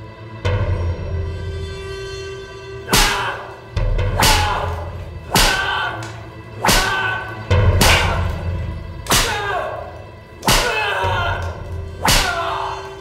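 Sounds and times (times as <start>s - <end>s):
dramatic music with low drone: 0.0s - 13.0s
whip cracks: 2.9s - 3.4s, 4.1s - 8.4s, 9.0s - 9.5s, 10.4s - 12.5s.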